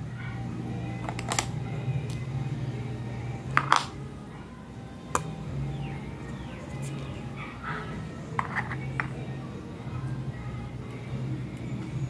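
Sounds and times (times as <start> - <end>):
steady low hum: 0.0 - 12.0
plastic toy pieces clicking: 1.0 - 1.5.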